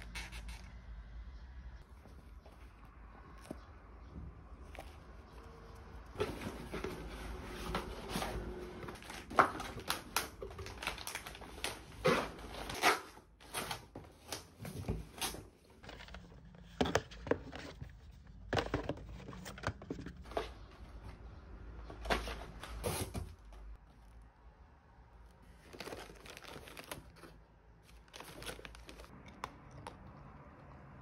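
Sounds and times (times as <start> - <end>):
cardboard and paper crinkling: 4.5 - 21.2, 25.2 - 29.2.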